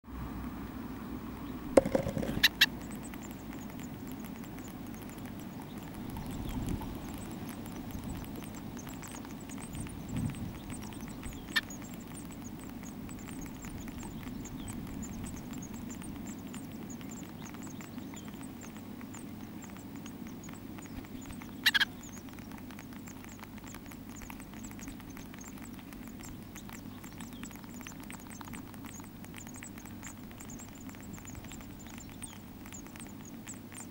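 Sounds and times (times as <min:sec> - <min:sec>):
electrical hum: 0:00.1 - 0:33.9
nestlings cheeping: 0:01.4 - 0:33.9
sharp knocks: 0:01.8 - 0:02.5.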